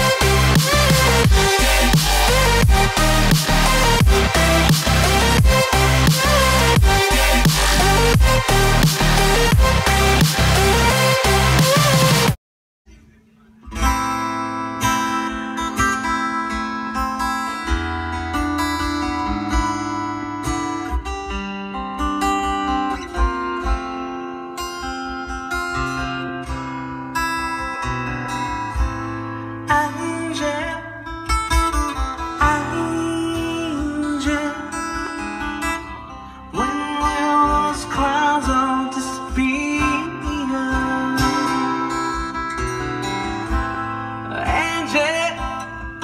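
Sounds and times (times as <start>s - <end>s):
deep bass thumps: 0.0s - 10.9s
acoustic guitar music: 0.0s - 12.3s, 13.0s - 46.0s.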